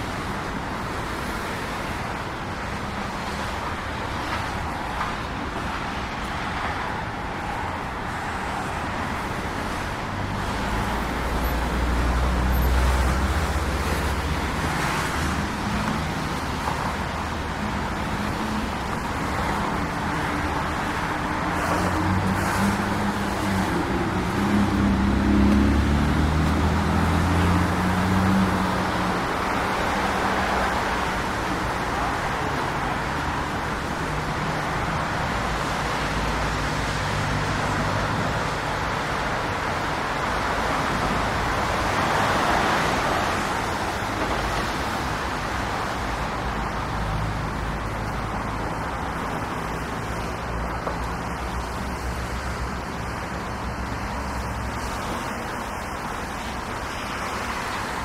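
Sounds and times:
cars driving past: 0.0 - 58.0
vehicle engine close by: 19.8 - 39.6.

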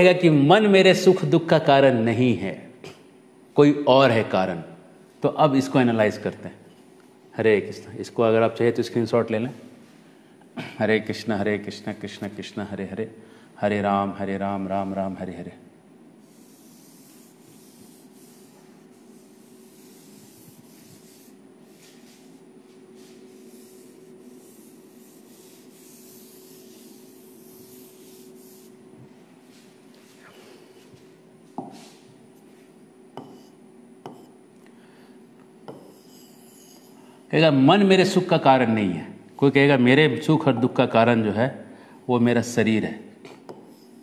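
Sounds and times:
palm rubbing across glass screen: 16.2 - 28.8.

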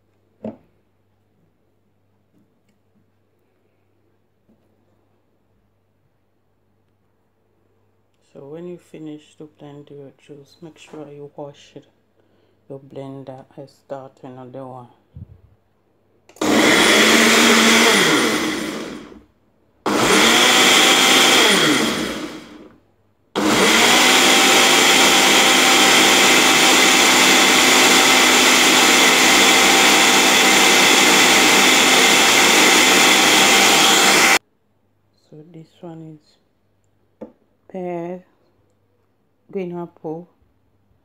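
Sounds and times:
blender running: 16.3 - 19.2, 19.9 - 22.8, 23.4 - 34.4.

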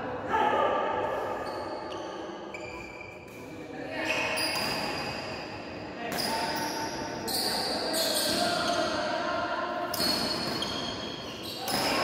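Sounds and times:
sneakers squeaking on court: 1.4 - 3.4, 4.0 - 5.5, 6.1 - 9.2, 9.9 - 12.0.

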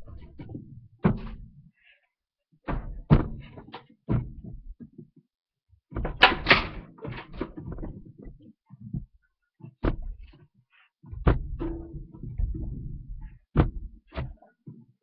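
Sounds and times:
knocks against washing machine: 2.7 - 3.5, 13.6 - 13.9.

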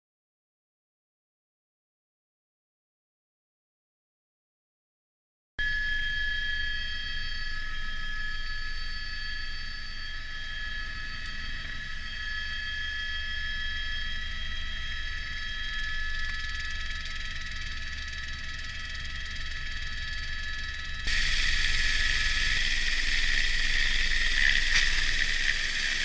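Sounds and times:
helicopter turbine whine: 5.6 - 26.0
helicopter low rumble: 6.8 - 26.0.

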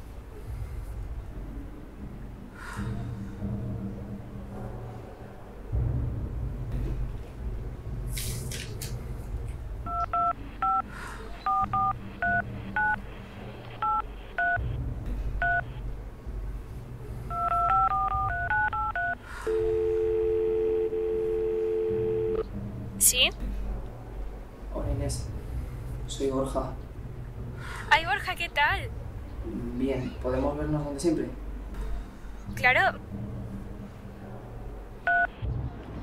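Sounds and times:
telephone keypad beeps: 9.9 - 10.8, 11.5 - 13.0, 13.8 - 14.6, 17.3 - 21.0.

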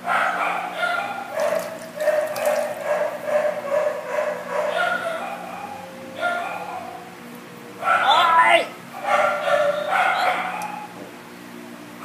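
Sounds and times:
puppy whimpering and yipping: 9.0 - 10.9.

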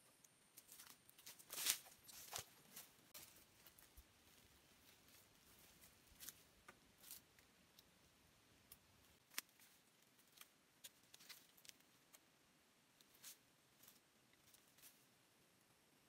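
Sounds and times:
faint handling clicks and rustles: 8.7 - 12.3, 12.9 - 15.2.

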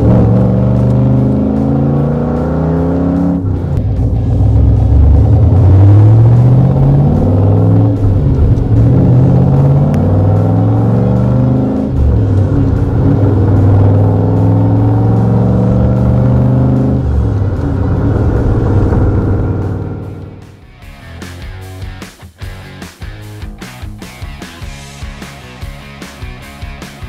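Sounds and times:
car engine accelerating through gears: 0.0 - 20.7.

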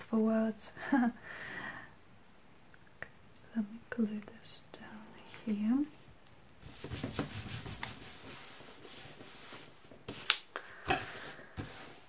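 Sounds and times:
hands rubbing paper: 6.6 - 12.0.

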